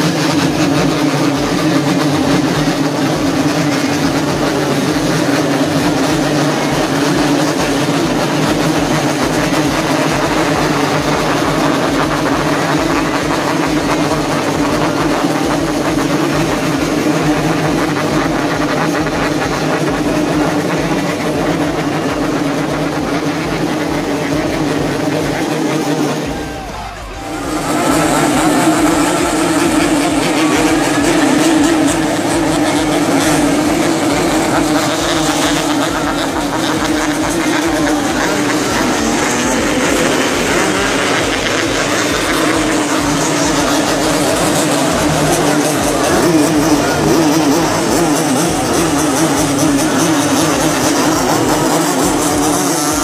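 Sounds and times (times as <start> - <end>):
motorcycles revving: 0.0 - 53.0.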